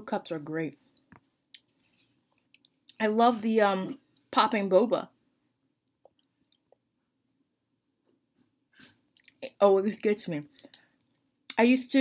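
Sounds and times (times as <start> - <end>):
soft mouth clicks chewing: 2.4 - 3.0, 6.0 - 6.8, 9.1 - 9.4.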